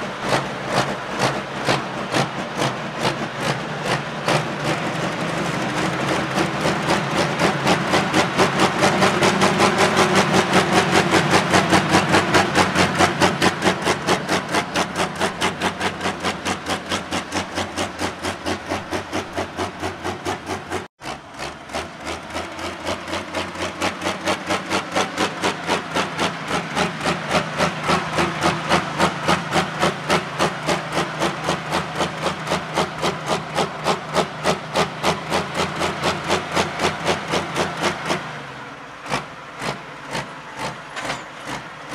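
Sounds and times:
diesel tractor engine running hard: 0:00.0 - 0:41.9.

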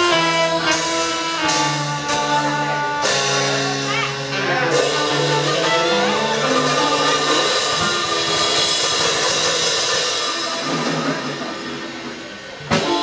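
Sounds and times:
saxophone: 0:00.0 - 0:09.6, 0:12.6 - 0:13.0
drum kit: 0:00.0 - 0:13.0.

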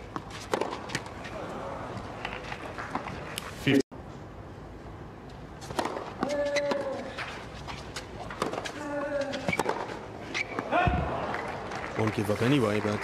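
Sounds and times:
racket striking tennis ball: 0:00.1 - 0:01.1, 0:05.6 - 0:07.1.

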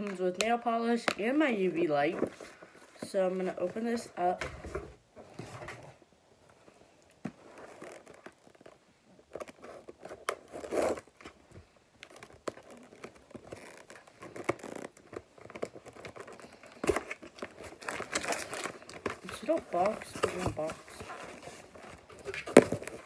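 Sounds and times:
cardboard box scraping and crinkling: 0:09.4 - 0:11.2, 0:12.5 - 0:23.0.

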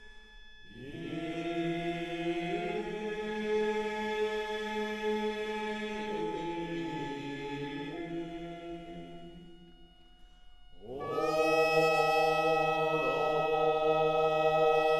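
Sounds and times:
voices chanting long notes: 0:00.7 - 0:14.9.

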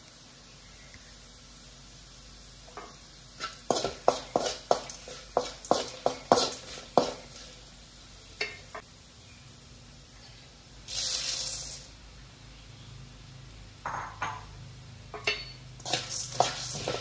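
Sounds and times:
faint oil sizzle: 0:00.0 - 0:12.3, 0:15.1 - 0:17.0
spoon scraping and clinking on pan: 0:02.8 - 0:07.2, 0:15.2 - 0:17.0.

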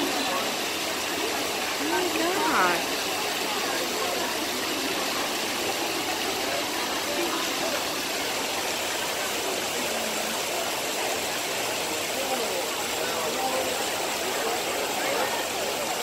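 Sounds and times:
crowd chatter: 0:00.0 - 0:16.0
fountain water cascading: 0:00.0 - 0:16.0.

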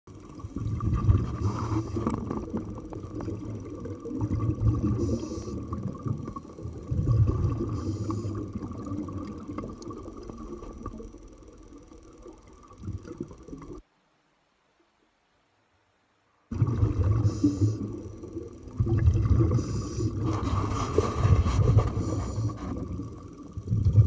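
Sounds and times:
rumbling exhaled bubbles: 0:00.1 - 0:13.8, 0:16.5 - 0:24.0
scuba regulator breathing hiss: 0:01.3 - 0:02.1, 0:04.9 - 0:05.8, 0:07.7 - 0:08.5, 0:17.2 - 0:18.1, 0:19.5 - 0:23.1.

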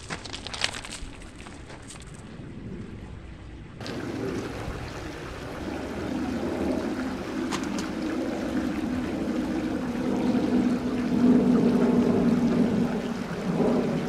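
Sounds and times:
water running in stream: 0:03.8 - 0:14.0.

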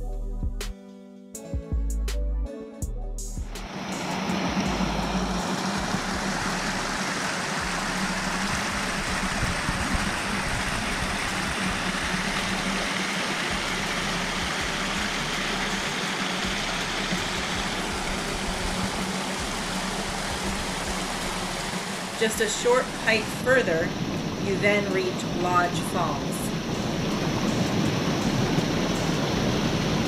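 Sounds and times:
water rushing over rocks: 0:03.6 - 0:30.0.

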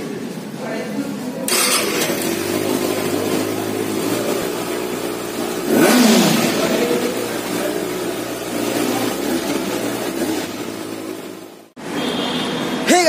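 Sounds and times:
motorcycle engine idling: 0:01.5 - 0:11.8.

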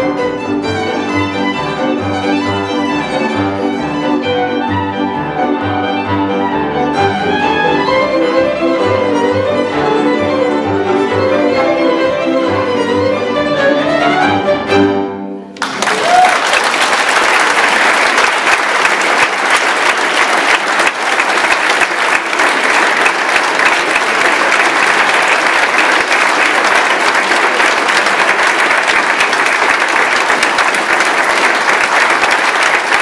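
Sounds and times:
audience applauding: 0:15.6 - 0:33.0.

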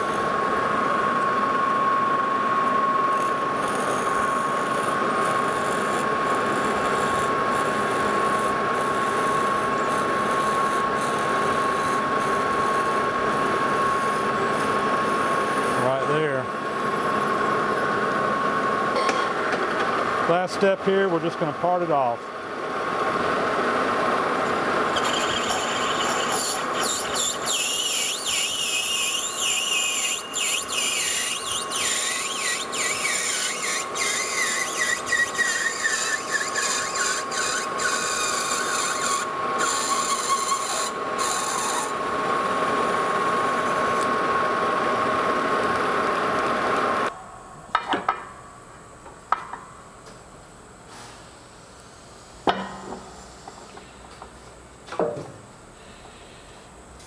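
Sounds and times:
lathe parting tool scraping: 0:03.2 - 0:16.2, 0:24.4 - 0:44.1.

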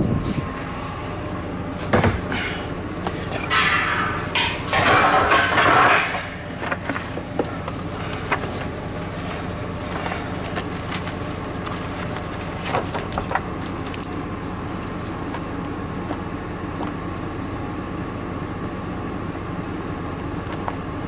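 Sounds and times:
steady low hum: 0:00.0 - 0:21.0
loud rustling: 0:04.9 - 0:14.1.

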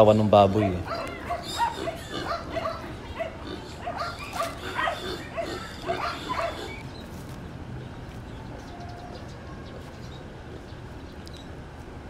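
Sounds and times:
pig squealing: 0:00.4 - 0:06.8.

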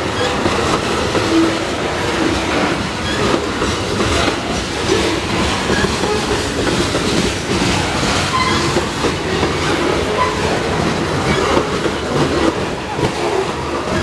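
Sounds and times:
freight train rolling past: 0:00.0 - 0:14.0
wheels clickety-clack: 0:00.0 - 0:14.0
faint wheel squeals: 0:08.3 - 0:08.7.

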